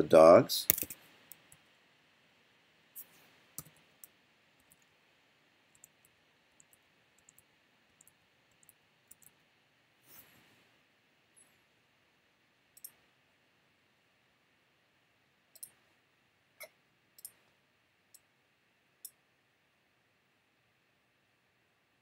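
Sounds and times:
keyboard and mouse clicks: 0:00.7 - 0:01.6, 0:03.6 - 0:04.9, 0:05.7 - 0:09.4, 0:15.6 - 0:15.8, 0:16.6 - 0:17.4.

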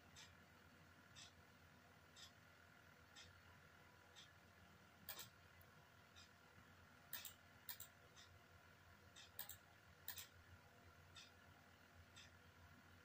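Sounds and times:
faint steady tick: 0:00.0 - 0:13.0
computer mouse clicks: 0:05.0 - 0:05.4, 0:07.1 - 0:08.3, 0:09.2 - 0:10.4.

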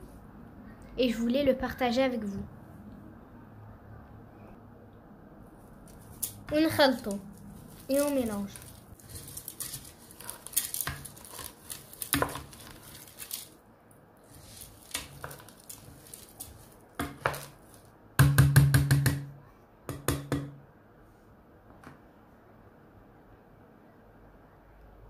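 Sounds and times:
wooden spoon stirring in metal pot: 0:05.8 - 0:13.6, 0:14.2 - 0:17.9
spoon knocking on pot: 0:18.2 - 0:19.3.

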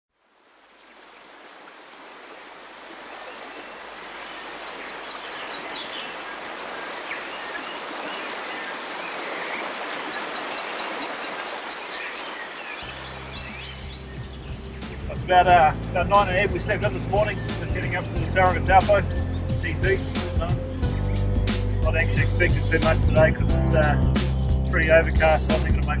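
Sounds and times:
stream rippling over stones: 0:00.1 - 0:21.0
birds chirping and warbling: 0:01.7 - 0:25.5.

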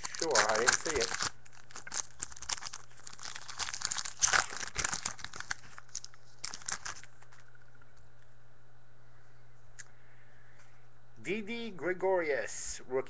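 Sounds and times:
cards being handled: 0:00.0 - 0:07.4
foil wrapper crinkling and tearing: 0:00.0 - 0:07.5
steady low hum: 0:00.0 - 0:13.0.

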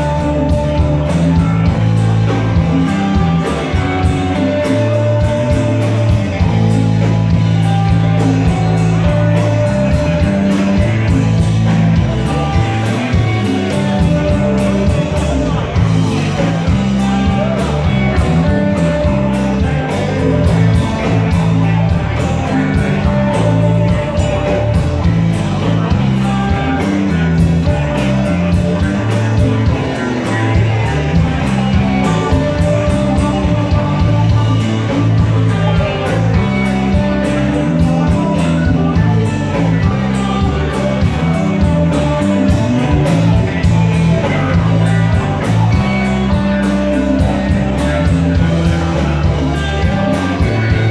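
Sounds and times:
bass guitar: 0:00.0 - 0:50.9
drum kit: 0:00.0 - 0:50.9
electric guitars: 0:00.0 - 0:50.9
keyboards: 0:00.0 - 0:50.9.

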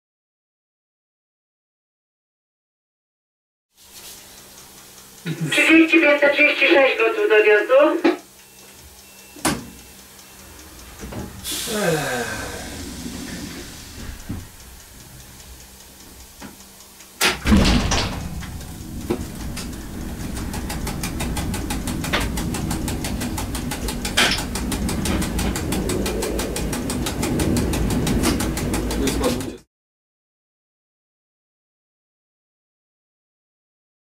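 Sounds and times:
train low rumble: 0:03.9 - 0:29.6
fast even ticking: 0:08.3 - 0:29.6
loud clunk: 0:17.2 - 0:26.0.

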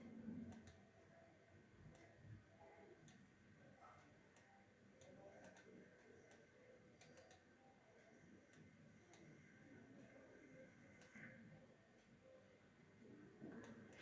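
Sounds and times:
computer mouse clicks: 0:00.4 - 0:00.8, 0:01.9 - 0:02.2, 0:04.3 - 0:07.5, 0:10.9 - 0:11.4, 0:13.5 - 0:14.0.

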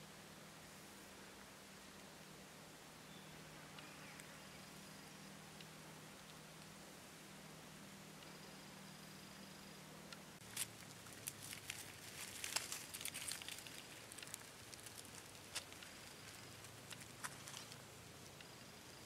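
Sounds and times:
dry leaves crackling: 0:10.4 - 0:17.9.

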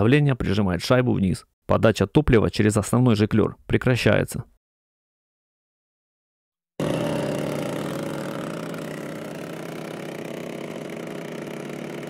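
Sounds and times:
chainsaw engine running: 0:06.8 - 0:12.0.

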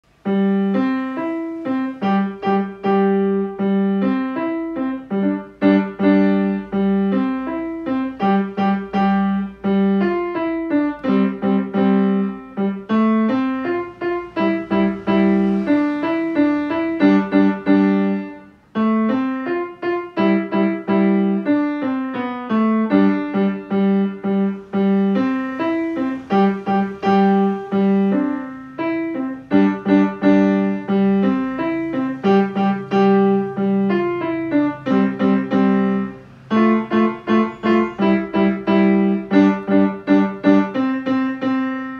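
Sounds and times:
grand piano playing: 0:00.0 - 0:41.9.

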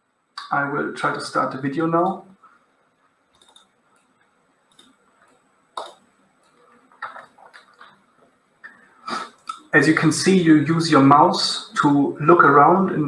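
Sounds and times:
computer mouse clicks: 0:03.3 - 0:08.0.

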